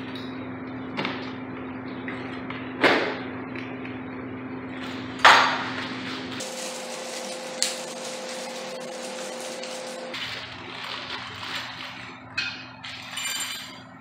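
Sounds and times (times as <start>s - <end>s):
plastic bags rustling: 5.8s - 12.2s.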